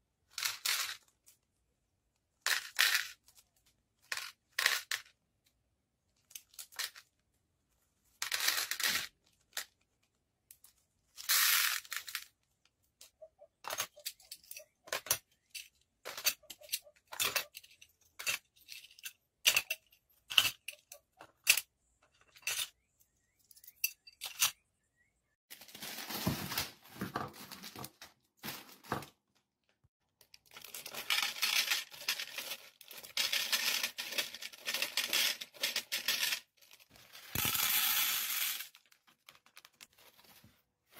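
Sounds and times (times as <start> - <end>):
plastic beads clicking and rattling: 8.2 - 12.4, 30.2 - 40.1
plastic bags crinkling: 25.5 - 29.0, 30.4 - 37.6.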